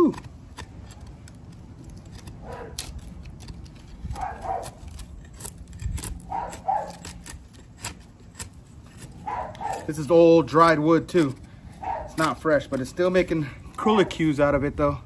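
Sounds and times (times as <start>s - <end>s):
knife shaving wood: 0.0s - 15.0s
dog barking: 2.4s - 2.8s, 4.2s - 4.8s, 6.3s - 7.1s, 9.2s - 9.9s, 11.8s - 12.2s.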